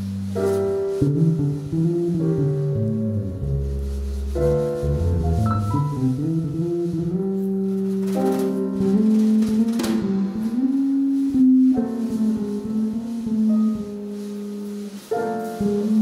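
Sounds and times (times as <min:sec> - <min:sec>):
drum kit with light cymbals: 0:00.0 - 0:16.0
electric bass guitar: 0:01.0 - 0:07.9.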